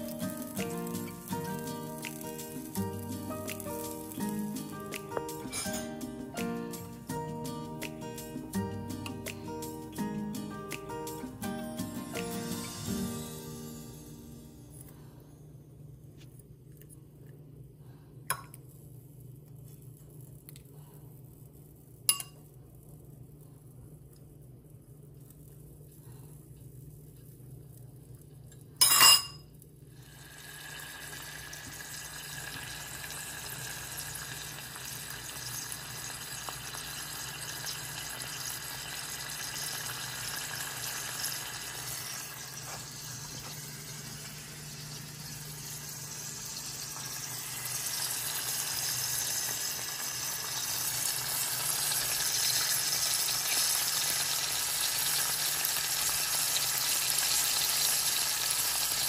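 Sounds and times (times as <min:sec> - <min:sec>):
fish sizzling in oil: 0:00.0 - 0:06.4, 0:29.9 - 0:59.0.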